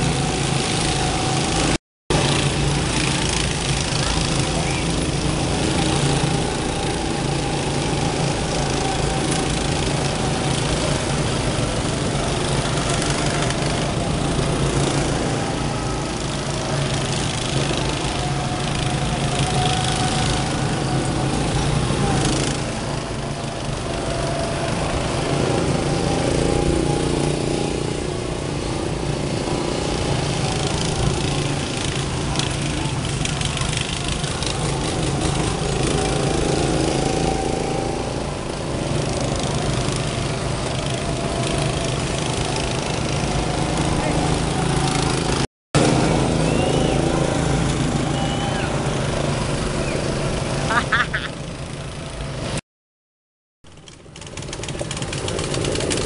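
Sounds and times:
go-kart engines droning: 0.0 - 52.6, 53.7 - 56.0.

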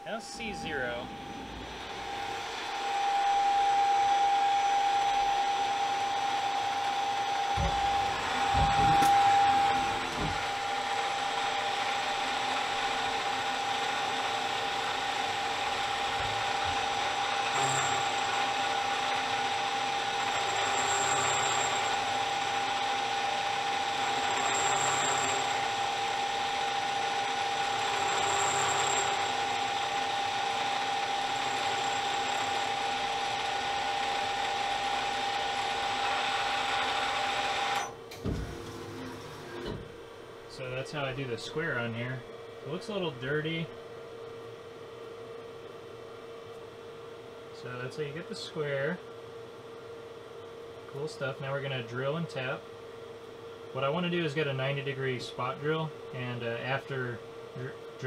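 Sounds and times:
machine whine: 0.0 - 43.8.

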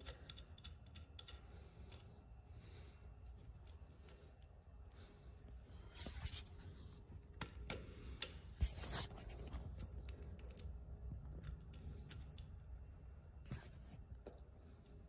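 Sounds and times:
small metal clicks and ticks: 0.0 - 2.1, 3.3 - 5.1, 9.6 - 12.6.

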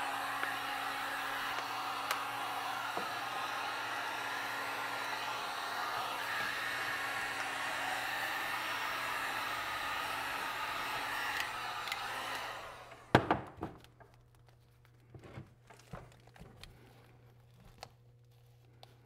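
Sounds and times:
heat gun blowing: 0.0 - 13.2.

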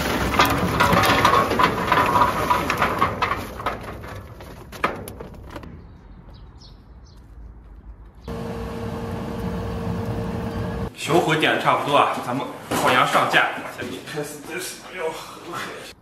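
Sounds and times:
charcoal clattering onto metal grill: 0.0 - 5.2.

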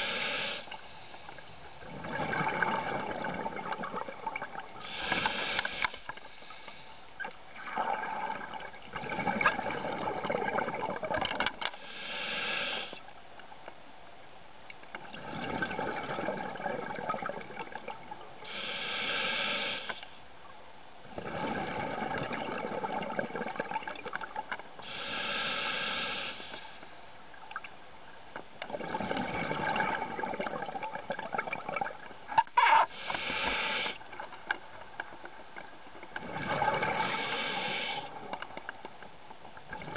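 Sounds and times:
diver breathing through regulator: 0.0 - 1.9, 4.8 - 7.1, 11.8 - 13.0, 18.5 - 20.2, 24.8 - 27.1, 32.8 - 34.0, 36.6 - 38.2.

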